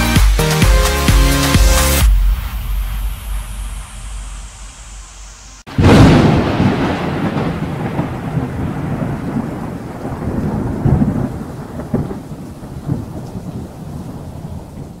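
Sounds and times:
low noisy rumble: 0:02.0 - 0:06.6.

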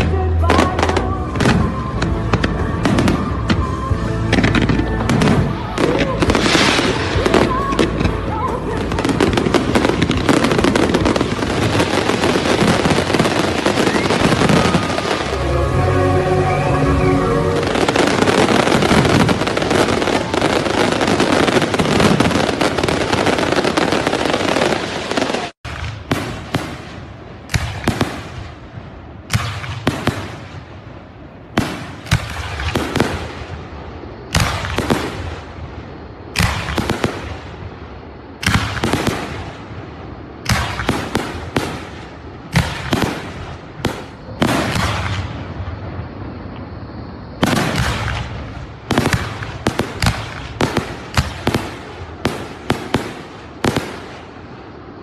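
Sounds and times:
fireworks bursting: 0:00.0 - 0:55.0.

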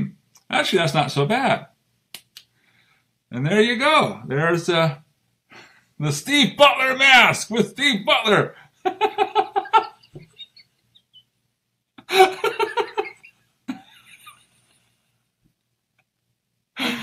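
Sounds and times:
man laughing: 0:08.8 - 0:11.2, 0:12.0 - 0:14.5, 0:16.8 - 0:17.0.

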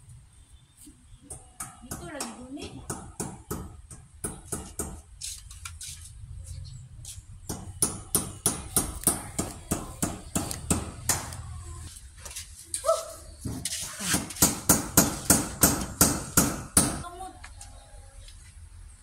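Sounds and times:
hammer striking metal: 0:14.4 - 0:17.0.

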